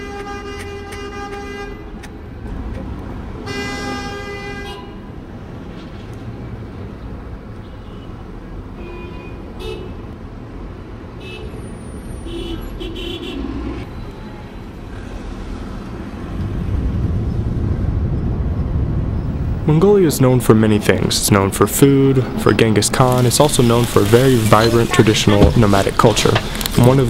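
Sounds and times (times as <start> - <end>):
car horn toots: 0.0 - 1.9, 11.2 - 14.5
street traffic: 0.0 - 27.0
low rumble: 15.6 - 24.0.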